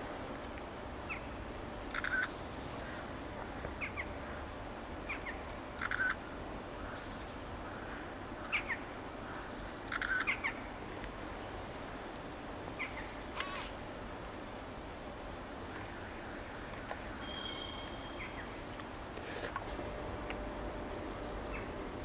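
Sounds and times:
steady background hum: 0.0s - 22.0s
birds chirping: 16.9s - 18.7s, 20.8s - 21.8s
harsh bird calls: 17.1s - 18.6s.

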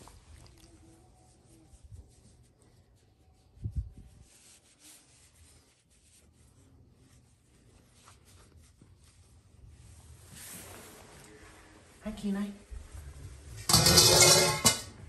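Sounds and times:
hand rubbing dog fur: 0.8s - 11.2s.

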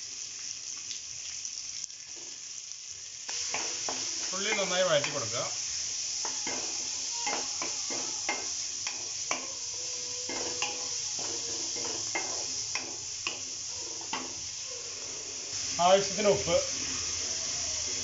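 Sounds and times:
onions sizzling in oil: 0.0s - 18.0s
utensil scraping a pan: 6.2s - 15.6s.

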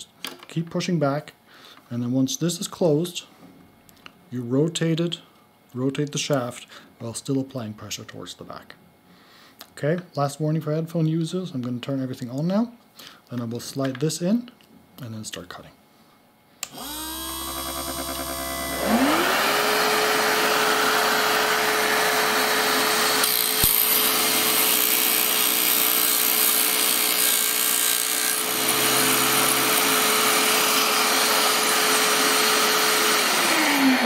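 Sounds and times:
vacuum cleaner running: 16.6s - 25.4s, 28.4s - 34.0s
arrow shaft being ground: 16.7s - 34.0s
electric motor spinning cutting wheel: 16.7s - 34.0s.

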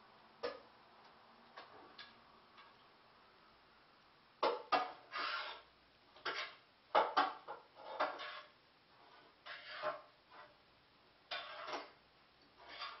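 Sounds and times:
kitchenware scraping: 4.4s - 10.6s, 11.3s - 12.0s, 12.6s - 13.0s.

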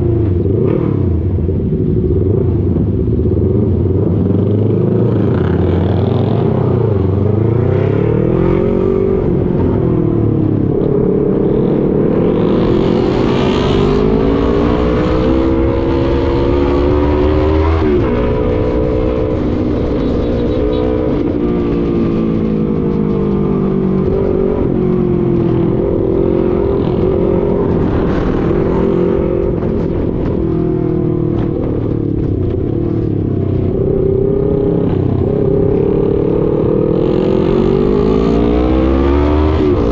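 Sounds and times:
motorcycle engine revving: 0.0s - 39.9s
wind and road noise: 0.0s - 39.9s.

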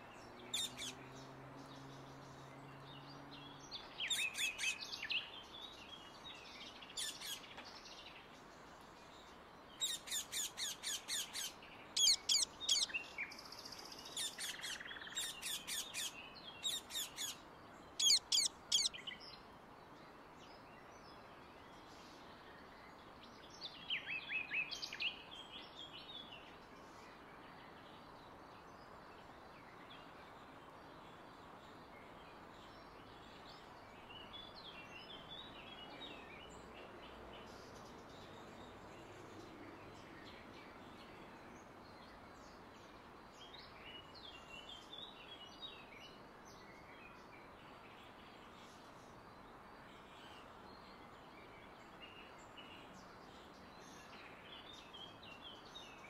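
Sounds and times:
parakeets screeching: 12.0s - 12.9s, 18.0s - 18.9s.

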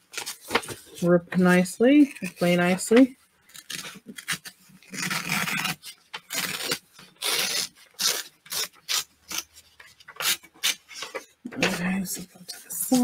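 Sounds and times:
paper tearing: 3.4s - 11.3s.

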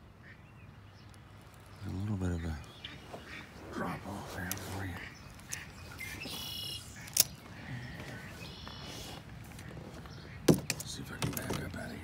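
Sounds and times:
short bird calls: 0.2s - 10.5s.

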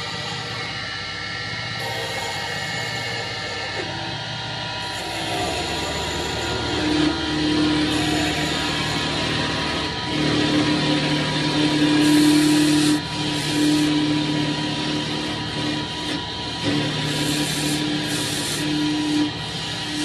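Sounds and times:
machine hum: 0.0s - 20.0s
lathe knives cutting wood: 4.8s - 20.0s.

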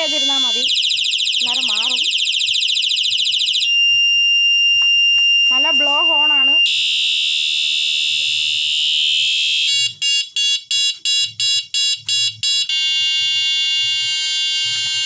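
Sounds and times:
rapid electronic beeping: 0.0s - 3.7s
electronic bicycle horn shrill tone: 9.7s - 15.0s.

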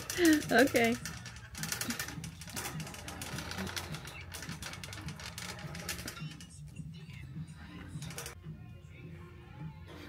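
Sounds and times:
fast rattle of small clicks: 0.0s - 6.6s.

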